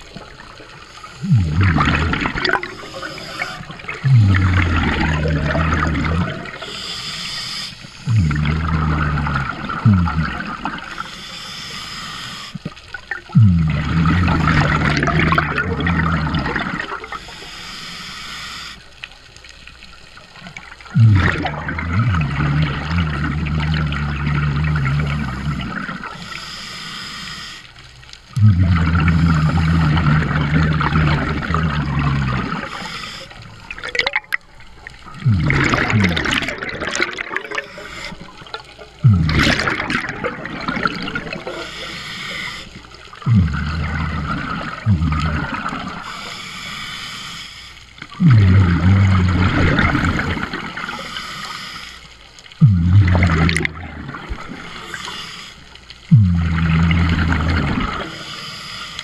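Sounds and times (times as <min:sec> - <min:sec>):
bubbles bursting underwater: 0:00.0 - 0:06.7, 0:08.1 - 0:10.9, 0:12.9 - 0:17.1, 0:20.4 - 0:26.2, 0:28.4 - 0:32.8, 0:33.6 - 0:41.8, 0:43.1 - 0:46.0, 0:48.1 - 0:51.0, 0:52.6 - 0:54.8, 0:56.1 - 0:58.1.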